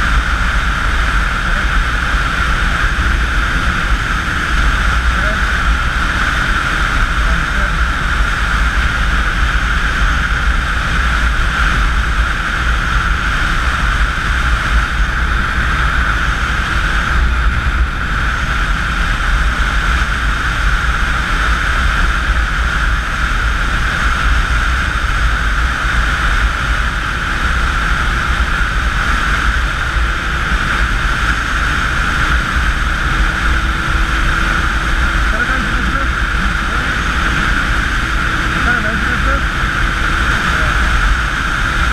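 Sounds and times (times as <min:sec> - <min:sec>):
motorcycle engine drone: 0:00.0 - 0:41.9
wind buffeting microphone: 0:00.0 - 0:41.9.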